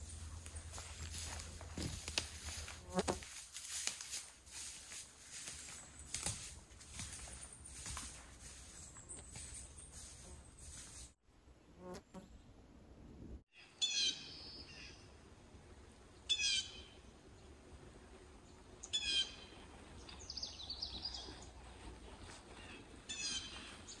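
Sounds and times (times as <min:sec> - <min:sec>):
songbird singing: 0:13.6 - 0:15.1, 0:16.2 - 0:17.5, 0:18.5 - 0:21.7, 0:22.5 - 0:24.0.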